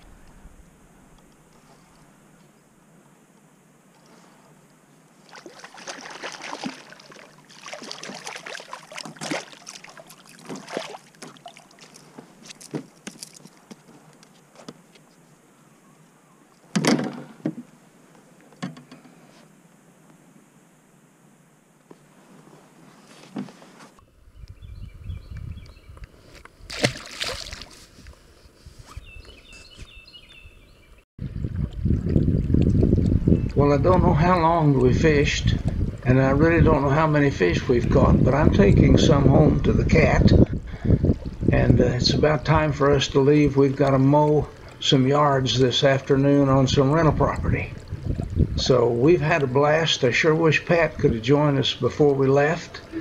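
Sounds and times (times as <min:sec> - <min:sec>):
wind rumble on microphone: 0:00.0 - 0:02.2, 0:24.2 - 0:44.6, 0:46.0 - 0:49.6
fish splashing in water: 0:05.2 - 0:13.6, 0:26.7 - 0:27.8.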